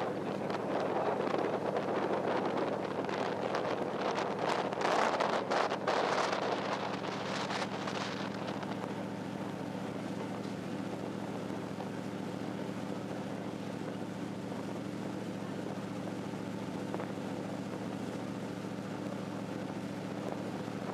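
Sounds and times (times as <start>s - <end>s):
wind buffeting microphone: 0.0s - 12.0s
boat engines humming: 0.0s - 20.9s
water rushing along hull: 0.0s - 20.9s.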